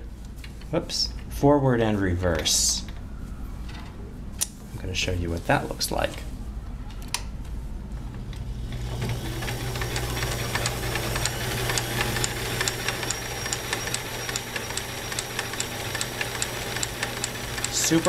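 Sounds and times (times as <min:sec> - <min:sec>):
sewing machine motor hum: 0:08.4 - 0:18.0
sewing machine ticking: 0:09.2 - 0:18.0.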